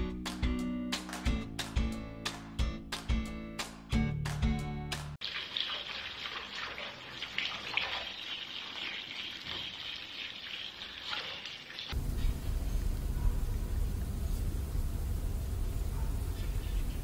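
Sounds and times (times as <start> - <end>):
water running into bathtub: 5.2 - 12.0.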